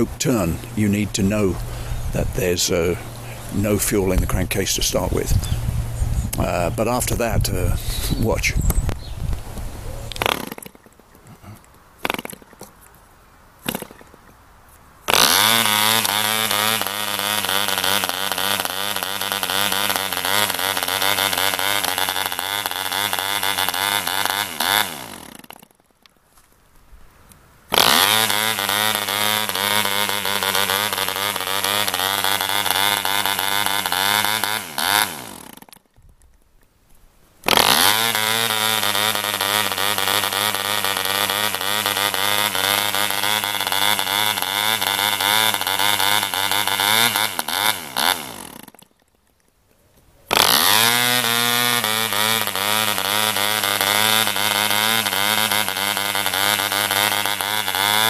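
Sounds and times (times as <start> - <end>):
model diesel engine running: 15.1 - 25.1, 27.7 - 35.2, 37.5 - 48.6, 50.3 - 58.0.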